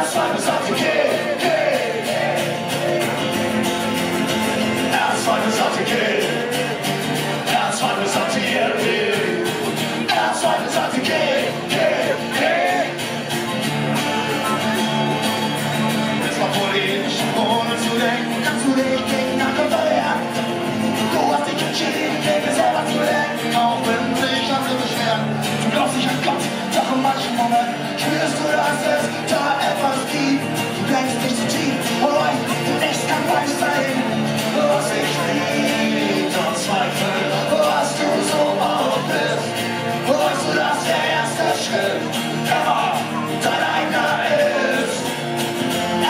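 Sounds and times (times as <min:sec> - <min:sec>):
acoustic guitars strumming: 0:00.0 - 0:46.0
person singing: 0:13.9 - 0:46.0.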